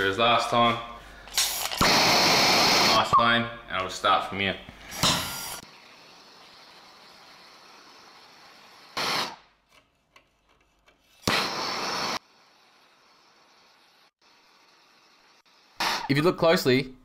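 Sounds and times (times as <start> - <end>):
gas torch flame hissing: 1.2 - 3.1, 4.8 - 9.6, 11.2 - 16.1.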